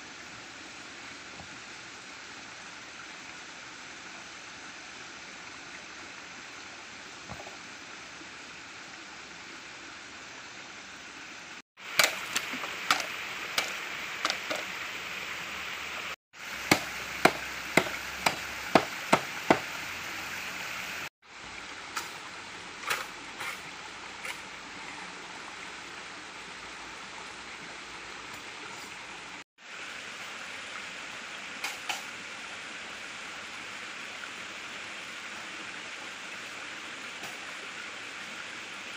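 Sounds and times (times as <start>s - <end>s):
stream flowing: 0.0s - 38.9s
blade chopping bamboo: 16.5s - 19.7s.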